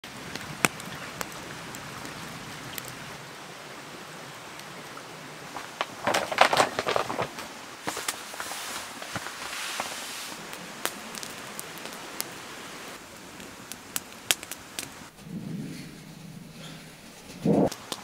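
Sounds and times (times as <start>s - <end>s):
wood fire crackling and popping: 0.0s - 3.0s, 5.4s - 15.2s, 17.4s - 18.0s
hiss of water: 8.3s - 10.6s.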